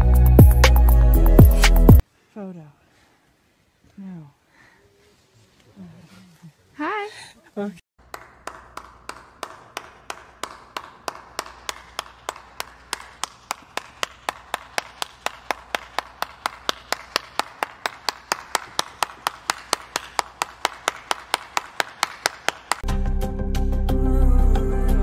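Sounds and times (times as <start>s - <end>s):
person clapping hands: 8.0s - 22.9s.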